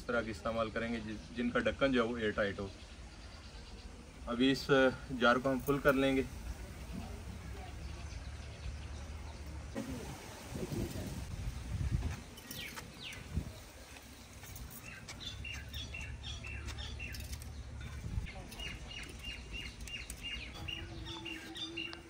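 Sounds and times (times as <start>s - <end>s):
small bird chirping: 11.5s - 22.0s.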